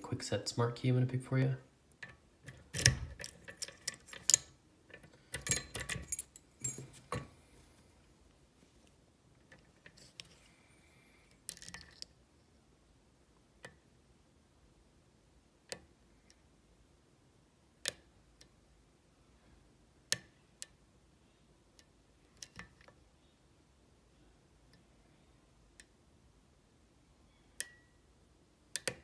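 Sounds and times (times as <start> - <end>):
lock pick clicks: 2.0 - 7.2, 28.7 - 29.0
metal rattling in lock: 2.0 - 7.3.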